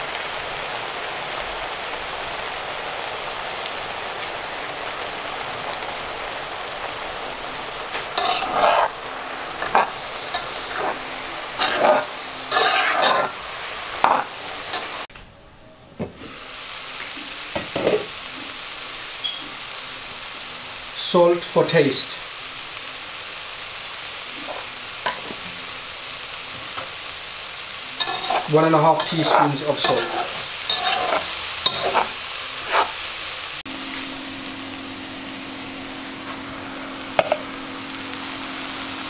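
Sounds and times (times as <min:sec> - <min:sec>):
vegetables sizzling in oil: 0:00.0 - 0:15.1, 0:16.1 - 0:39.0
spatula scraping pan: 0:08.0 - 0:13.4, 0:14.0 - 0:14.9, 0:24.4 - 0:25.4, 0:28.0 - 0:33.0.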